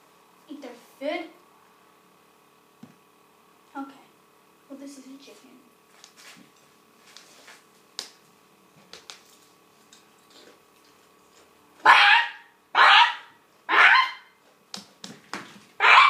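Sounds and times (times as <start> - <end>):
person imitating chicken squawks: 11.9 - 14.2.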